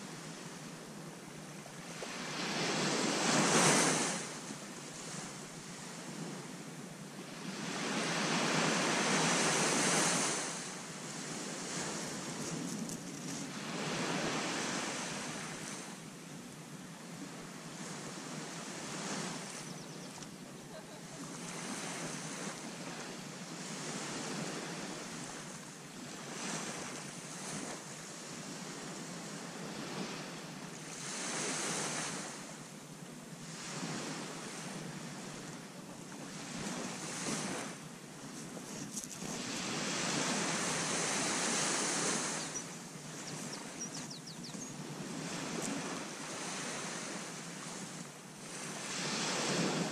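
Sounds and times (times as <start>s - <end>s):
small waves breaking: 1.7s - 6.6s, 7.2s - 16.0s, 17.0s - 32.7s, 33.4s - 49.9s
wind on microphone: 33.7s - 49.9s.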